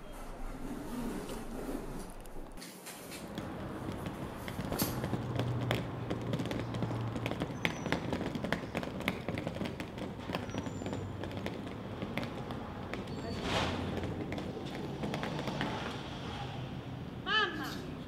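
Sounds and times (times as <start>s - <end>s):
suitcase wheels rolling over paving: 0.1s - 16.2s
footsteps on paving: 2.9s - 15.7s.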